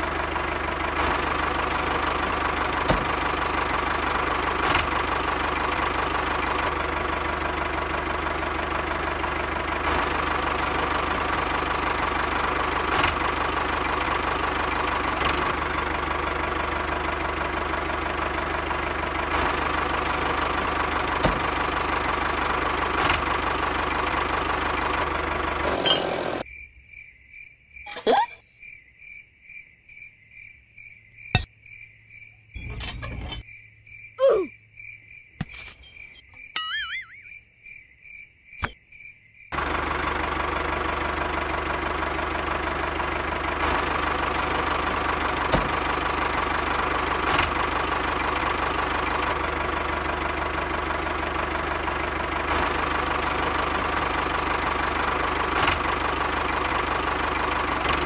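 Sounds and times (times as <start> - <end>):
pulsing chirp sound effect: 27.9 - 28.6, 35.7 - 37.4.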